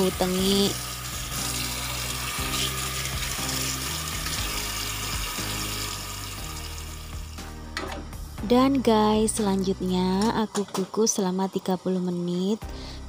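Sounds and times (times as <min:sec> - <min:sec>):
tap water running: 0:00.0 - 0:07.9
background music: 0:00.0 - 0:13.0.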